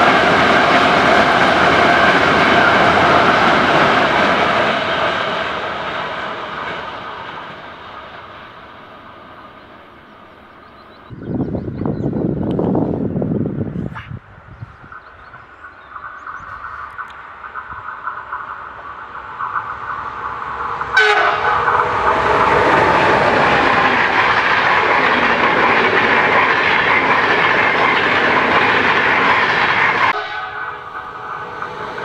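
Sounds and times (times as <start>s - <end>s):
train passing on rails: 0.0s - 32.0s.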